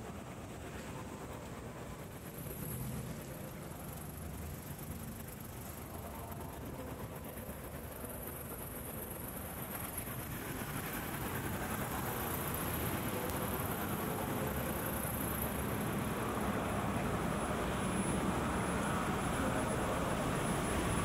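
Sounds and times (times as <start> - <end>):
city vehicle noise: 10.8 - 21.0.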